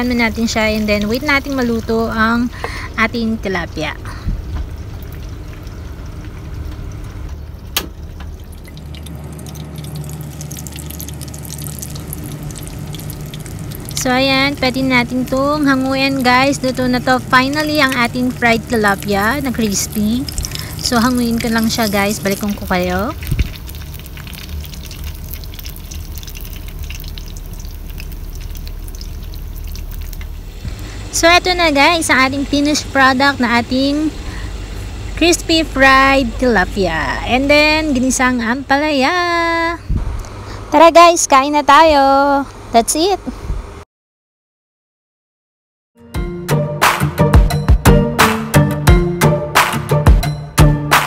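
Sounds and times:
fish sizzling in hot oil: 0:00.0 - 0:03.0, 0:03.8 - 0:36.6
steady low rumble: 0:00.0 - 0:43.8
oil popping: 0:04.0 - 0:31.0.

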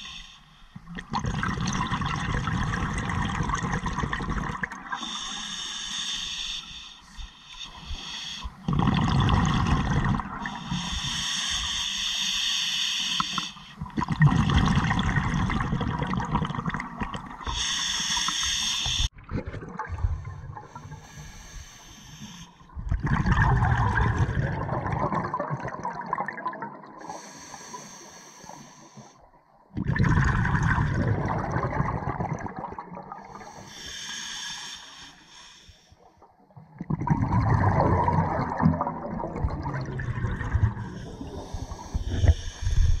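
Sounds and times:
regulator hissing inhale: 0:05.0 - 0:08.6, 0:10.4 - 0:13.8, 0:17.5 - 0:19.1, 0:20.8 - 0:22.6, 0:27.0 - 0:29.2, 0:33.4 - 0:36.0, 0:40.8 - 0:43.0
bubbly underwater exhalations: 0:08.6 - 0:10.4, 0:13.8 - 0:17.4, 0:22.8 - 0:26.6, 0:29.8 - 0:33.4, 0:36.8 - 0:43.0.

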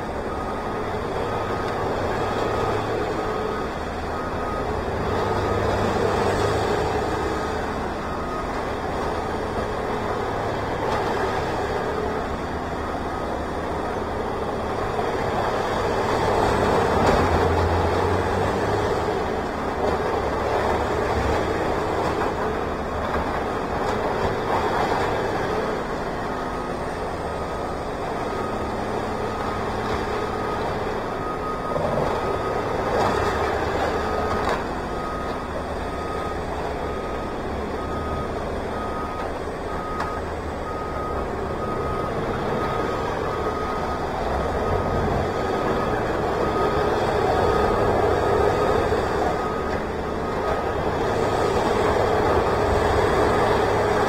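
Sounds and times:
heavy diesel machinery running: 0:00.0 - 0:54.0
backup alarm beeping: 0:28.2 - 0:54.0.

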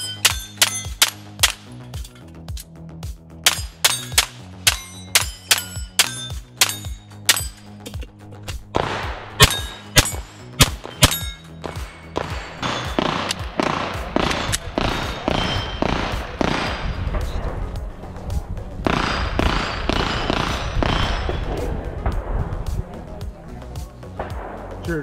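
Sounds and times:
pistol shots: 0:00.0 - 0:01.9, 0:03.4 - 0:07.8, 0:08.7 - 0:17.4, 0:18.9 - 0:22.3
bullets hitting steel targets: 0:00.0 - 0:02.6, 0:03.4 - 0:08.2, 0:08.8 - 0:17.4
background music with beat: 0:00.2 - 0:25.0.

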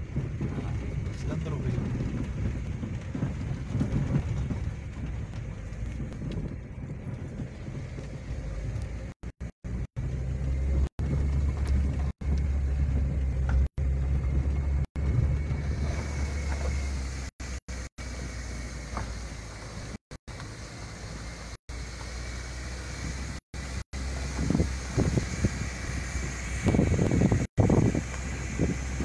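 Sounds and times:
engine and road rumble: 0:00.0 - 0:29.0.

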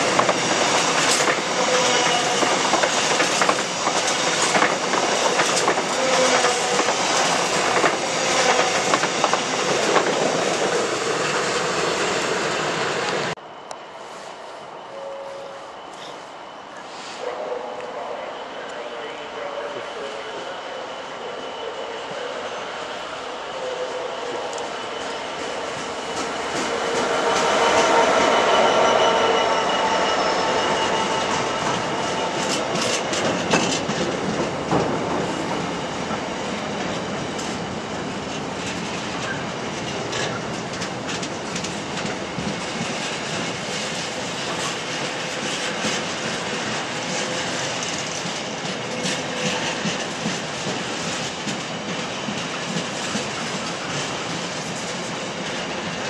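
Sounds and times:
train wheels clicking on rails: 0:00.0 - 0:12.4, 0:24.3 - 0:28.5, 0:30.0 - 0:56.0.

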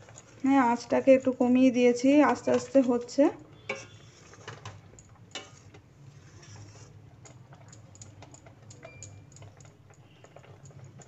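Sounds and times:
bubbles popping in simmering pot: 0:02.3 - 0:11.0.

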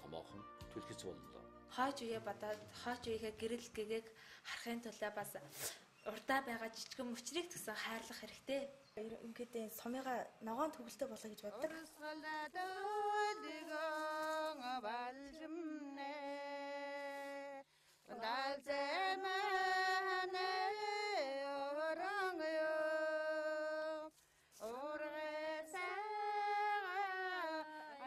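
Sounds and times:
woman singing long notes: 0:11.5 - 0:28.0.

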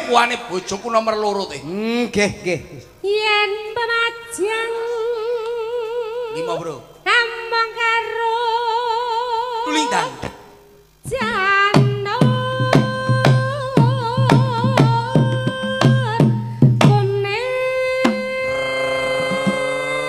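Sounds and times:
woman singing with vibrato: 0:03.0 - 0:10.4, 0:11.0 - 0:20.0
hand drum beat: 0:11.2 - 0:17.3, 0:19.2 - 0:20.0.

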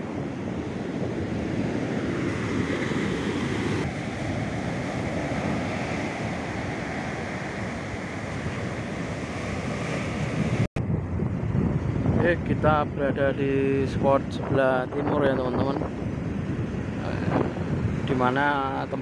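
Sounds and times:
ocean surf breaking: 0:00.0 - 0:10.7, 0:15.8 - 0:19.0
wind buffeting microphone: 0:00.0 - 0:19.0.

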